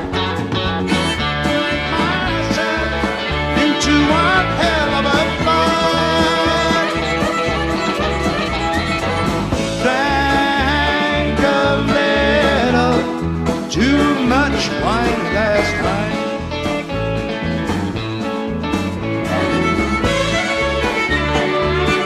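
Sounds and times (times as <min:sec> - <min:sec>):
live rock band playing: 0:00.0 - 0:22.0
violin gliding lines: 0:05.7 - 0:09.7, 0:19.1 - 0:22.0.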